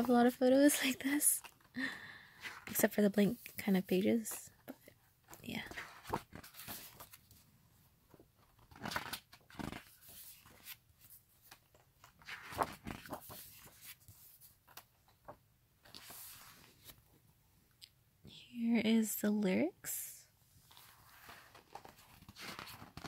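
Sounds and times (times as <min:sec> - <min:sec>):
book pages turning: 0:04.2 - 0:07.4, 0:08.1 - 0:17.0, 0:20.7 - 0:23.0
paper rustling and sliding: 0:05.6 - 0:07.4, 0:08.5 - 0:17.0, 0:20.7 - 0:23.0.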